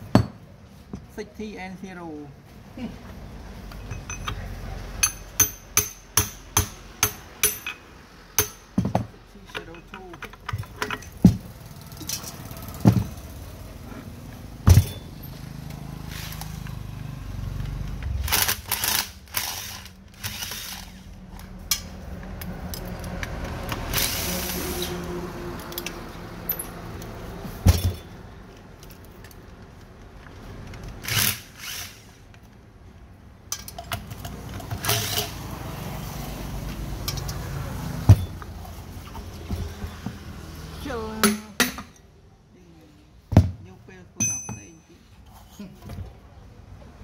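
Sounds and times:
metal knocks and clatter: 8.4s - 13.3s.

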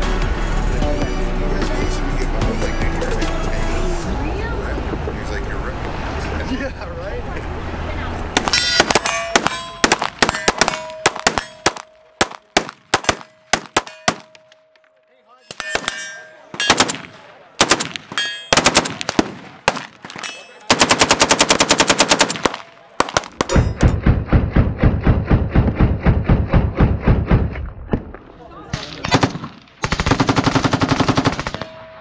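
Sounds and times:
automatic rifle fire: 8.4s - 14.4s, 16.6s - 24.0s, 28.8s - 31.8s
single gunshots: 8.4s - 14.4s, 16.6s - 27.6s.

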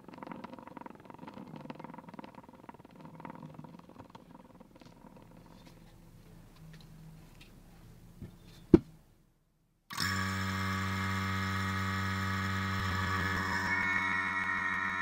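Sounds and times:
vacuum pump droning: 9.9s - 15.0s.

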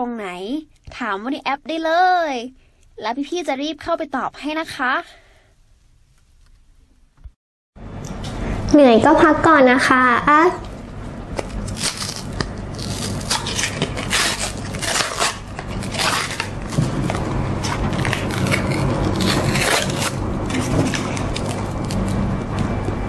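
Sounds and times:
low steady hum: 0.0s - 23.0s
wrapper crinkling and tearing: 11.4s - 22.5s.

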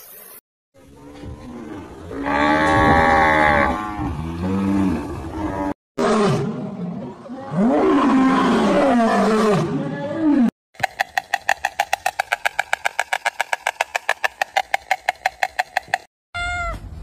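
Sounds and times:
lion roaring and growling: 0.9s - 10.5s
fast even clicking: 10.8s - 16.1s.

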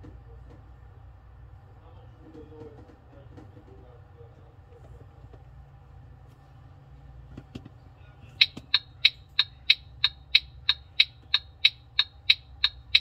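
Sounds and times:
turn signal ticking: 8.4s - 13.0s.

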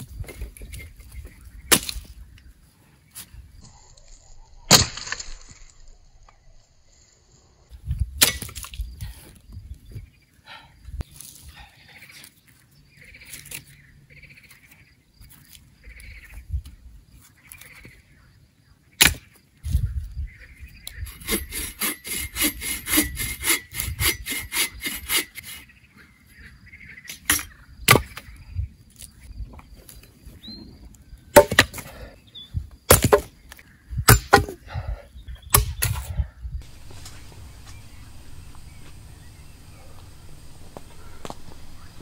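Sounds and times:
sharp blows on wood: 21.0s - 25.6s
sawing wood by hand: 21.0s - 25.7s.

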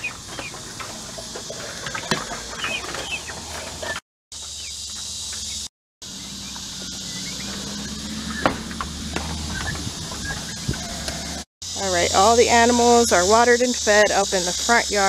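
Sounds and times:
chicks and turkeys peeping: 0.0s - 4.0s, 6.4s - 8.8s, 9.4s - 11.4s
handling knocks and rustles: 0.0s - 5.6s.

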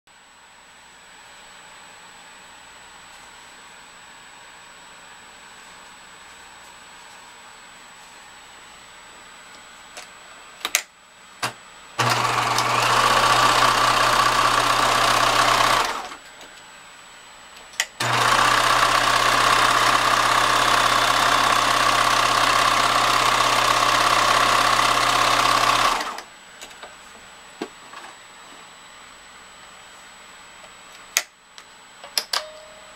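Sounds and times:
sewing machine stitching fabric: 12.0s - 16.2s, 18.0s - 26.3s.

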